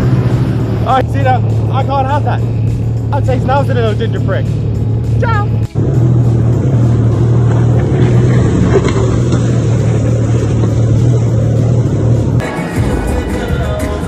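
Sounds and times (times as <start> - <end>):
jet ski engine droning: 0.0 - 14.0
music: 0.8 - 8.6, 10.9 - 14.0.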